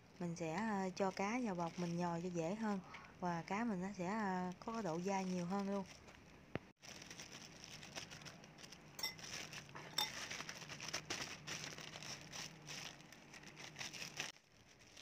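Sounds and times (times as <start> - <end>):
plastic bag crinkling: 0.2 - 15.0
metal spoon clinking on bowl: 9.0 - 9.2, 9.9 - 10.2.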